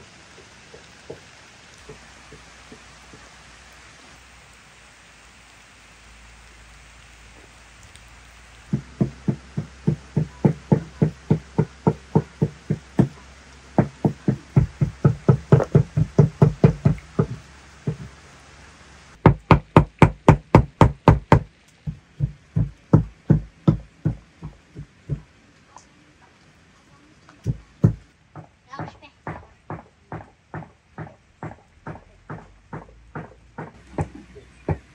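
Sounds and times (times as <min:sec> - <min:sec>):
rain hissing: 0:00.0 - 0:34.9
rhythmic sharp knocking: 0:08.7 - 0:13.2, 0:13.8 - 0:18.1, 0:19.2 - 0:25.2, 0:27.5 - 0:34.9.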